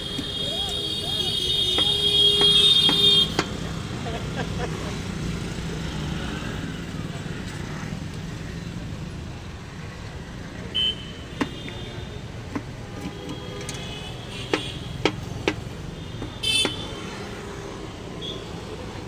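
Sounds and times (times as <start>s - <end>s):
vehicle horn toot: 0.0s - 3.5s, 10.8s - 12.2s
street traffic noise: 0.0s - 19.0s.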